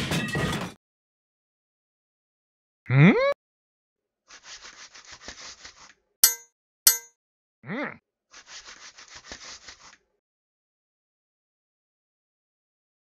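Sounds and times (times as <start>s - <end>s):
sharp metallic clangs: 6.2s - 7.1s.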